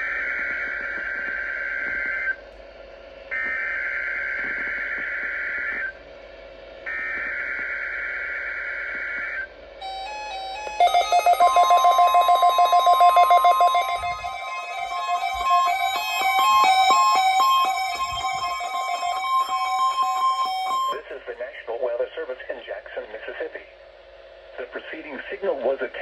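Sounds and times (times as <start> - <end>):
rapid electronic alert beeps: 9.8 - 21.0
steady high tone: 9.8 - 21.4
buzzy data bursts: 9.9 - 21.0.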